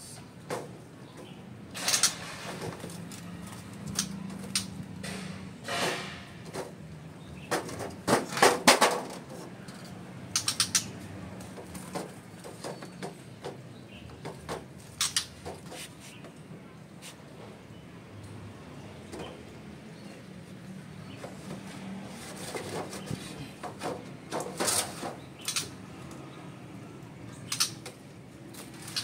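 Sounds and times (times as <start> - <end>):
sharp clicks and knocks: 0.5 - 6.8, 7.4 - 15.8.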